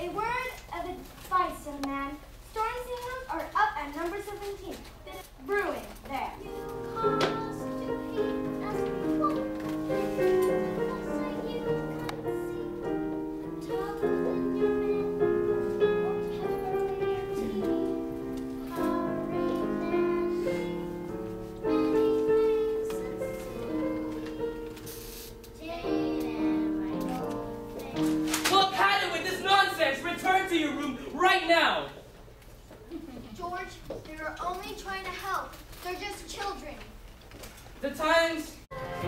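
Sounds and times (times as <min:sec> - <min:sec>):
sustained orchestral chords: 0:38.7 - 0:39.0.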